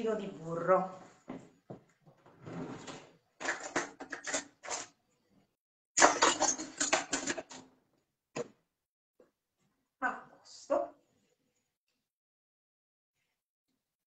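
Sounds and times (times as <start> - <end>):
cutlery and dishes clinking: 3.4 - 4.9, 6.0 - 7.6.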